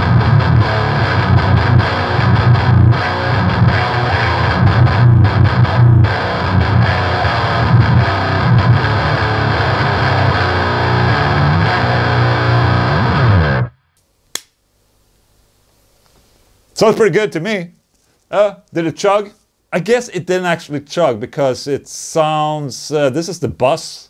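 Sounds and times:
distorted electric guitar riffing: 0.0s - 13.9s.

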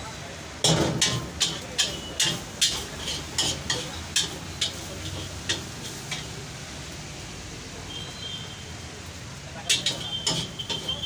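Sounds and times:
faint sizzle: 0.0s - 11.0s
metal spatula scraping a wok: 0.7s - 6.4s, 9.7s - 11.0s.

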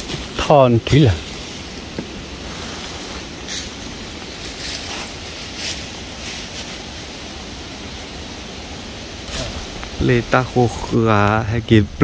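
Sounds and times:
steady hiss: 0.0s - 12.0s
stick scratching in tree hollow: 1.2s - 7.2s.

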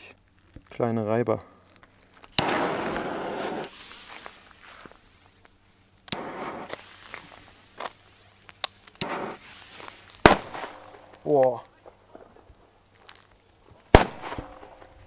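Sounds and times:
firecracker fuse crackling: 0.0s - 15.0s
footsteps crunching on sand: 1.8s - 8.6s, 9.2s - 14.0s
firecracker bang: 2.4s - 3.7s, 6.1s - 6.9s, 9.0s - 9.6s, 10.2s - 11.2s, 13.9s - 15.0s.

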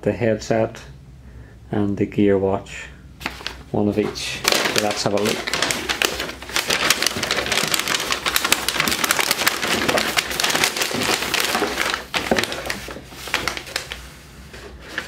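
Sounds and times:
tissue paper rustling and crinkling: 3.2s - 15.0s.

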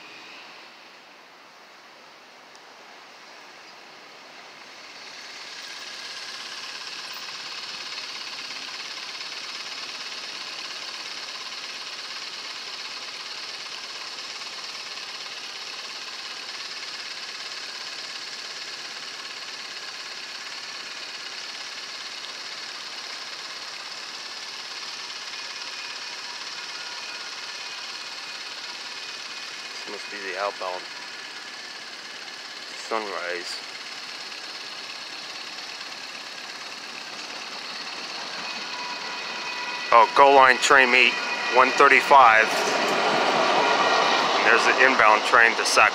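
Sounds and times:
railroad crossing bell ringing: 37.1s - 45.3s.

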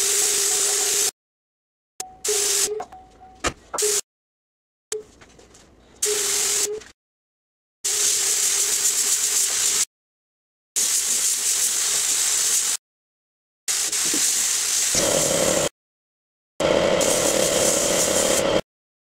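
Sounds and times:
paint spray gun hissing: 0.0s - 1.1s, 6.0s - 6.7s, 10.8s - 12.8s, 13.7s - 15.7s, 16.7s - 18.6s.

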